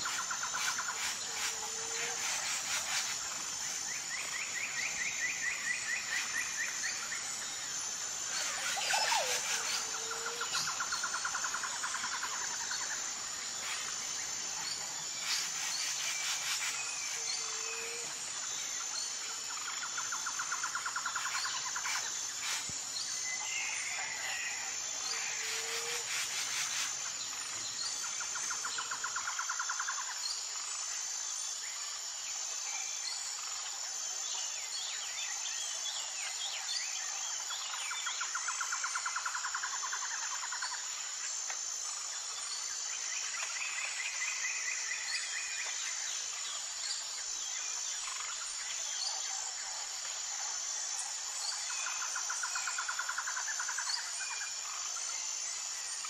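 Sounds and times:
high-pitched insect drone: 0.0s - 56.0s.

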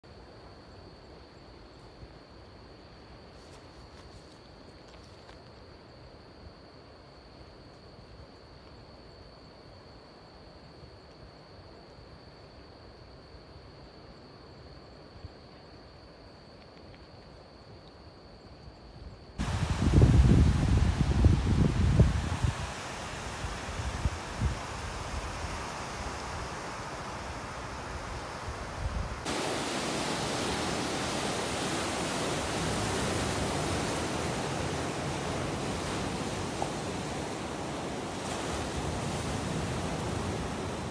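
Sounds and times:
surf breaking on breakwater: 19.4s - 40.9s
wind buffeting microphone: 19.4s - 40.9s.

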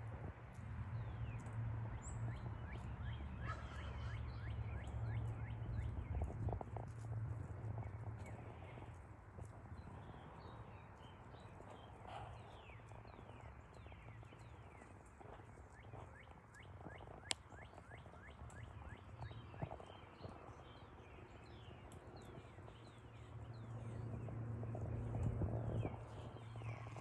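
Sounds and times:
patter of small hooves: 0.0s - 27.0s.

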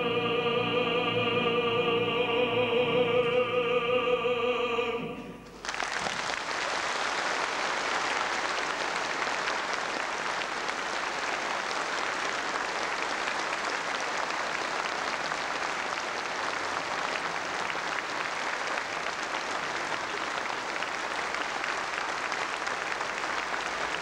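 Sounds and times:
large audience applauding: 5.5s - 24.0s.

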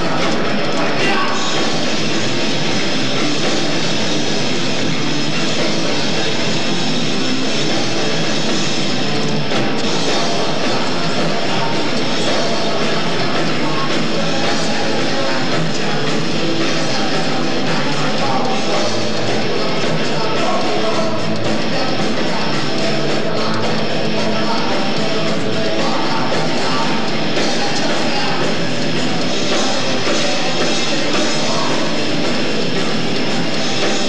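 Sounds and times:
bass guitar: 0.0s - 34.0s
drum kit: 0.0s - 34.0s
electric guitars: 0.0s - 34.0s.

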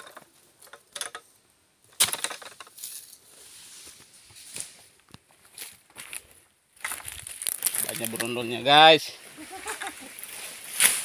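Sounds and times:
rustling of dry fronds: 2.3s - 11.0s.

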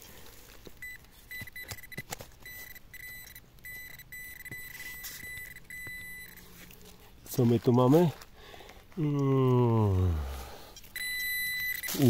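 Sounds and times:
metal detector beeping: 0.7s - 6.8s, 10.7s - 12.0s.

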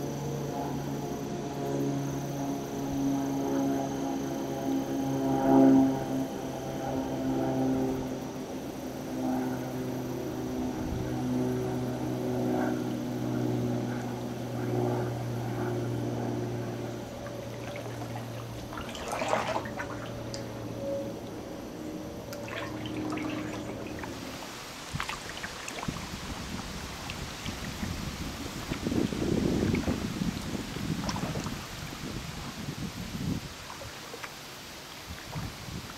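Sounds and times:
low engine hum: 0.0s - 35.9s
paddle strokes splashing water: 15.7s - 21.4s, 22.2s - 35.9s.

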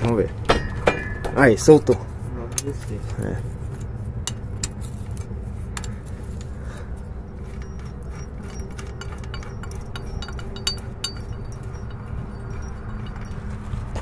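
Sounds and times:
low steady rumble: 0.0s - 14.0s
ringing metal notes: 0.5s - 1.9s, 5.7s - 14.0s
metal wrench clinking on bolts: 7.4s - 14.0s.

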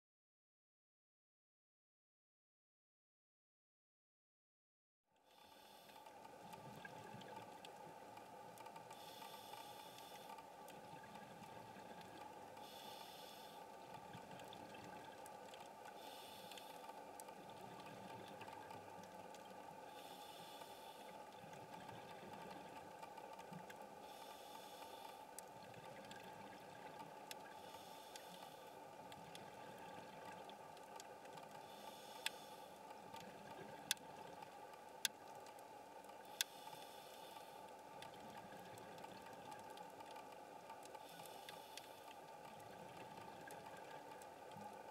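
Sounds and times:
steady low underwater hiss: 5.1s - 44.9s
diver regulator breaths: 5.3s - 6.2s, 8.8s - 10.5s, 11.8s - 13.8s, 15.9s - 17.1s, 19.8s - 21.3s, 24.0s - 25.4s, 27.4s - 28.9s, 31.5s - 32.9s, 36.2s - 37.8s, 40.9s - 42.3s.

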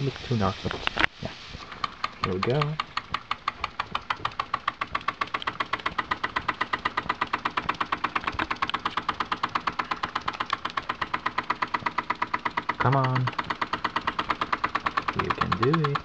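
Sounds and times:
model steam engine ticking: 1.6s - 16.0s.

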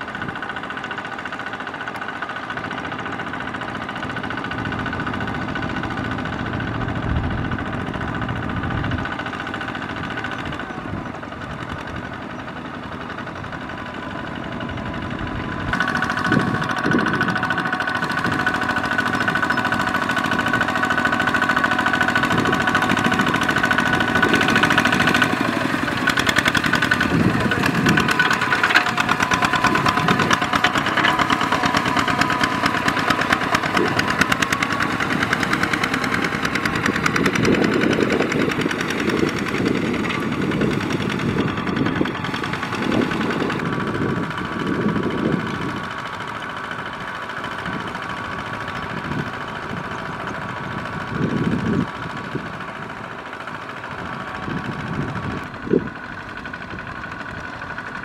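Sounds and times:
diesel engine running: 0.0s - 58.0s.

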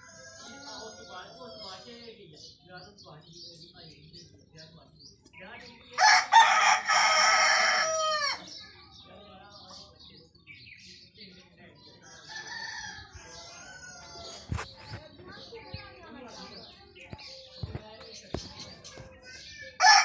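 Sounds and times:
rooster crowing: 6.0s - 8.4s.

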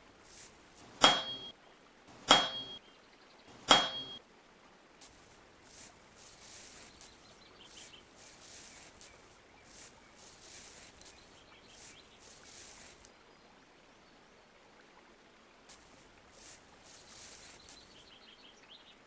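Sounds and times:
soft rustling: 0.0s - 1.5s, 5.0s - 13.1s, 15.7s - 18.2s.

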